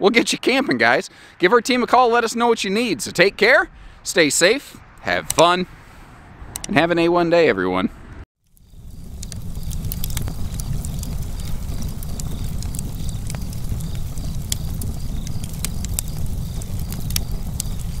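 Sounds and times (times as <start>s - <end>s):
wood fire crackling: 8.4s - 18.0s.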